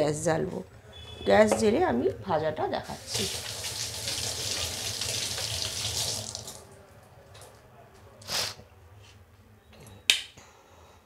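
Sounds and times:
water running from a tap: 2.9 - 6.6.

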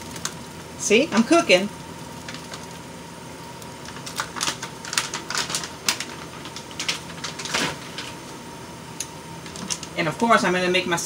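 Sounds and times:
food package crinkling: 2.2 - 2.8, 3.5 - 8.3, 9.4 - 10.0.

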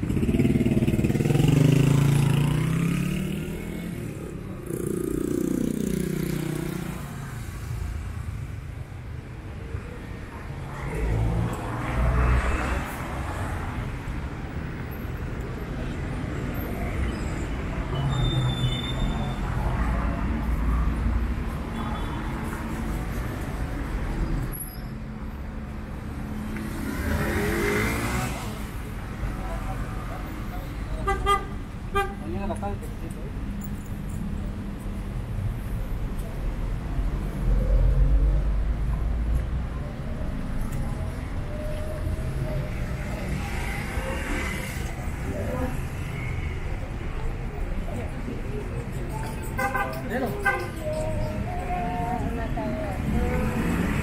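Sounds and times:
traffic rumble: 0.0 - 54.0.

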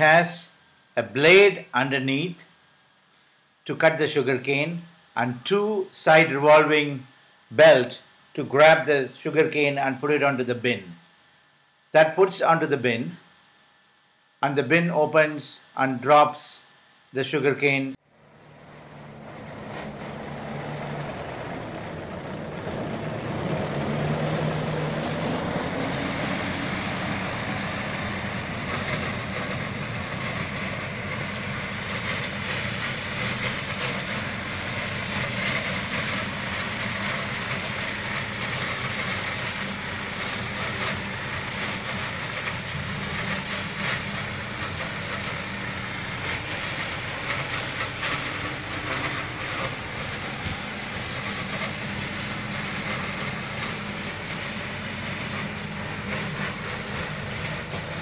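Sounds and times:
tractor engine running: 18.0 - 58.0
sugarcane harvester cutting cane: 18.2 - 58.0.

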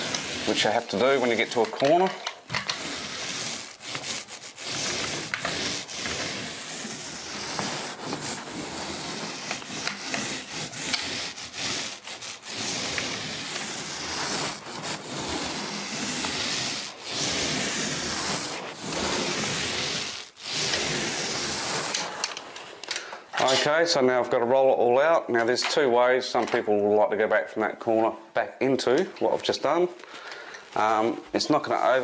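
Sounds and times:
paint roller rolling on wall: 0.0 - 23.9.

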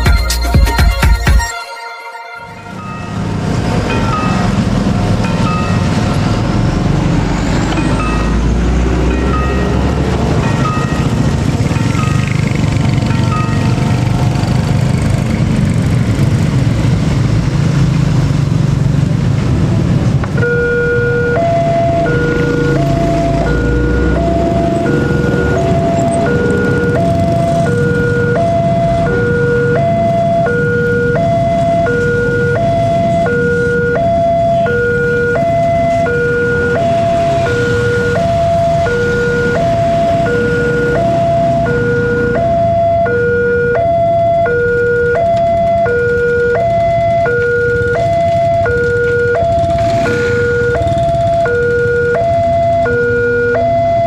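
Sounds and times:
level crossing alarm chime: 1.0 - 4.6
motorcycle engines rumbling: 2.7 - 54.0.

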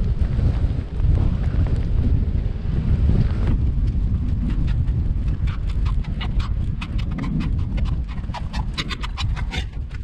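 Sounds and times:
crunching of packed snow: 0.0 - 6.2
wind buffeting microphone: 0.0 - 10.0.

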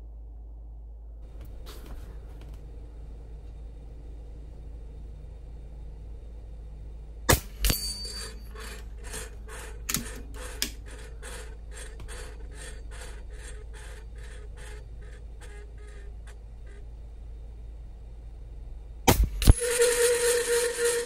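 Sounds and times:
pellet striking steel target: 7.3 - 8.4
metal target spinning and ticking: 7.3 - 15.3.

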